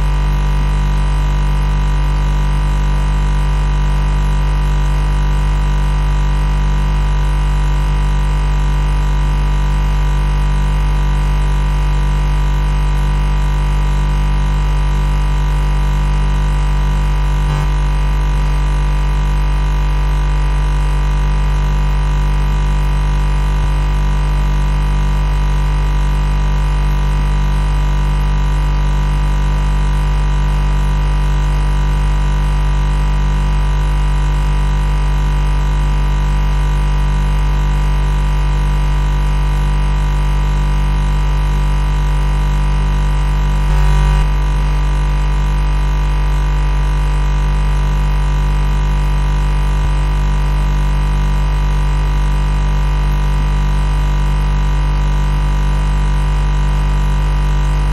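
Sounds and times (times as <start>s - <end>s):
refrigerator compressor humming: 0.0s - 53.2s.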